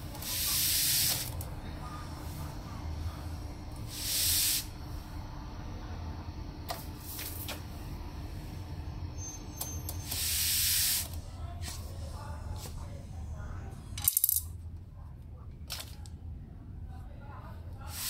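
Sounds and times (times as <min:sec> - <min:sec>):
steady low hum: 0:00.0 - 0:18.0
hissing bursts: 0:00.2 - 0:01.3, 0:03.9 - 0:04.7, 0:10.0 - 0:11.1.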